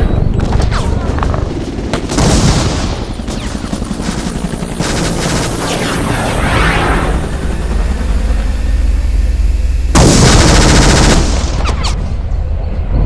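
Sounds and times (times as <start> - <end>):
machine-gun fire: 1.2 - 6.2, 10.0 - 11.7.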